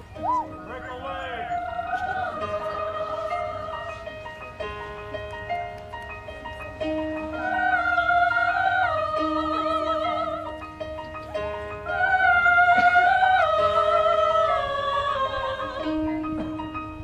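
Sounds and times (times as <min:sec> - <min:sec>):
women's choir singing with vibrato: 0:00.2 - 0:04.5, 0:07.2 - 0:10.8, 0:11.6 - 0:17.0.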